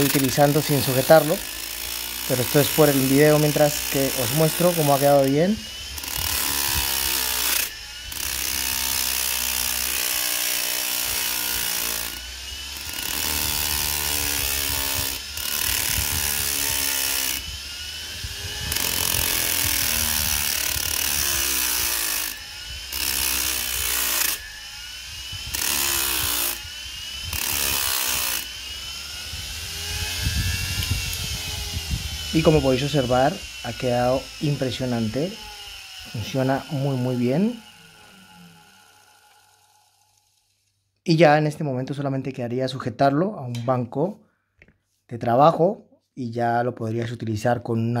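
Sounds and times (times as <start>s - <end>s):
pliers scrubbing on polishing wheel: 0.0s - 28.5s
motor hum and whine: 0.0s - 40.4s.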